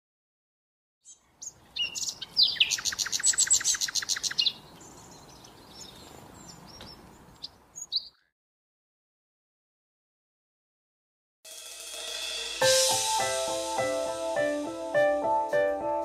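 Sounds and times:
bird trill: 1.0 - 8.3
small birds chirping: 1.0 - 8.3.

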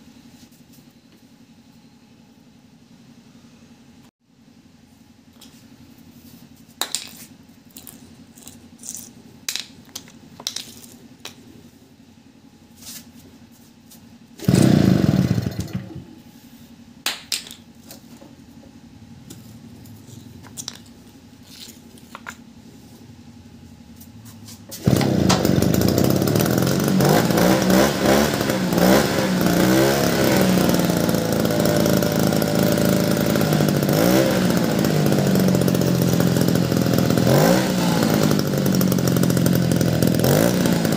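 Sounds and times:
small petrol engine: 7.5 - 9.4, 14.2 - 16.5, 18.1 - 23.2, 23.9 - 40.9.

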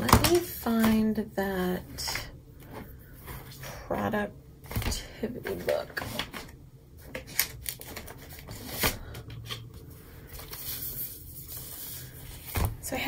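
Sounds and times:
paper pages rustling: 5.5 - 12.7.

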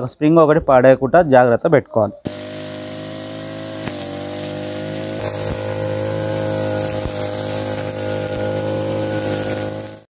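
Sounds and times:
brush cutter engine cutting grass: 2.3 - 10.0.

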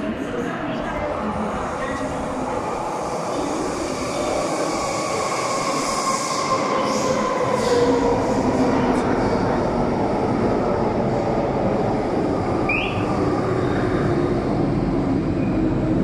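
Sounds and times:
brief high squeal: 12.7 - 13.1.

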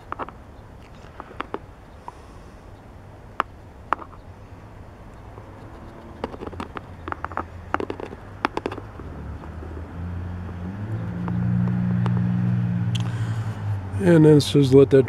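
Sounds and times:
small sharp clicks and taps: 0.0 - 2.2, 5.1 - 9.8
vehicle engine hum: 0.0 - 15.0.

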